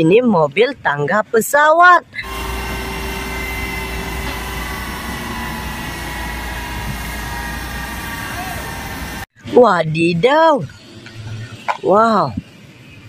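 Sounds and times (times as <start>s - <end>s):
jet turbine whine and rumble: 2.2s - 9.3s.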